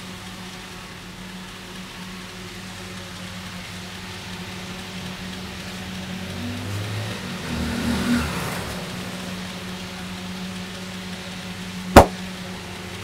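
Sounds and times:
motor vehicle passing by: 6.0 - 9.6.

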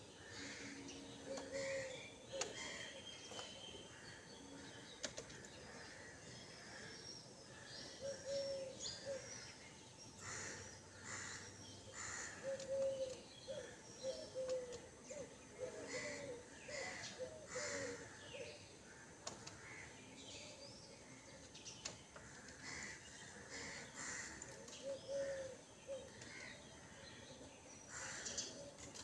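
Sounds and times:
crows cawing: 0.2 - 3.0, 10.2 - 14.6, 15.6 - 18.3, 22.2 - 27.0, 27.9 - 28.5.

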